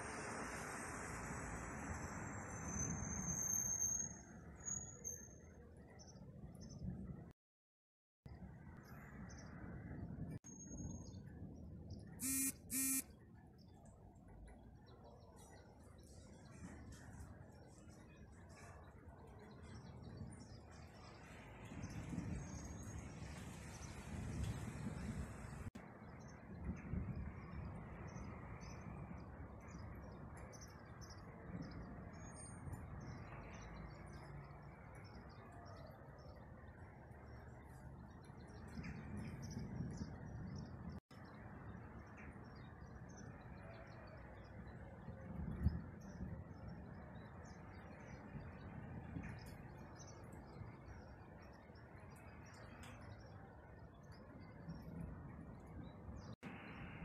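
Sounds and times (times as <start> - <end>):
high bird chirps: 12.2 - 13.0.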